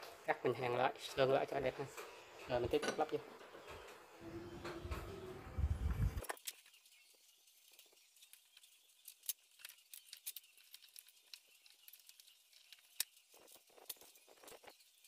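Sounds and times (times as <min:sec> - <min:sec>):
hands handling motor parts: 0:07.6 - 0:15.0.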